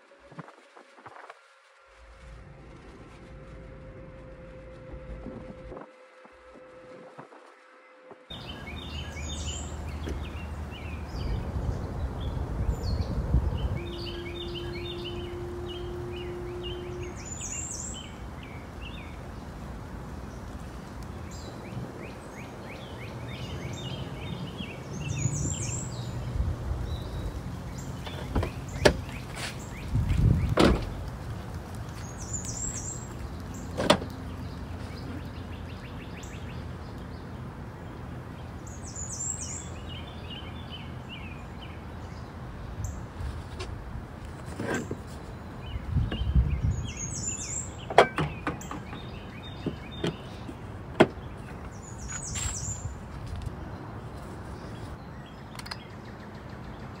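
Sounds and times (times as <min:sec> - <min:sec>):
outdoor background noise: 0:00.0 - 0:57.0
small birds chirping: 0:08.3 - 0:43.6, 0:44.2 - 0:57.0
car hatch clicks and knocks: 0:28.0 - 0:29.0, 0:30.5 - 0:31.0, 0:33.8 - 0:34.1, 0:47.8 - 0:51.6.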